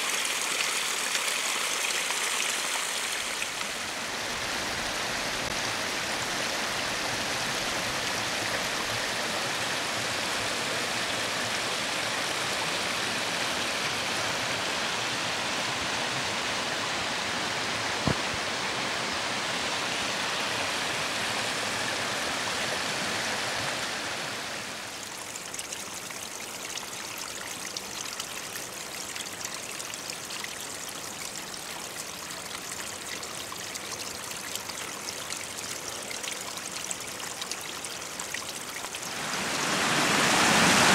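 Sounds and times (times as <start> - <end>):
water trickling over stones: 0.0 - 3.9, 24.9 - 39.6
brook running over stones: 0.0 - 4.2, 25.0 - 40.9.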